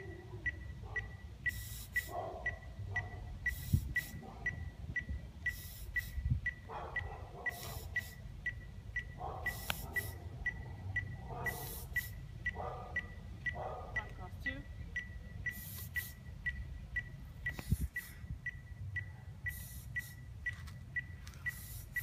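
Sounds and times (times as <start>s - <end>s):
short high electronic beeps: 0.0s - 6.7s, 7.5s - 12.3s, 14.8s - 22.0s
hissing beat hits: 7.5s - 8.2s, 11.5s - 12.2s, 15.5s - 16.2s, 19.5s - 20.2s.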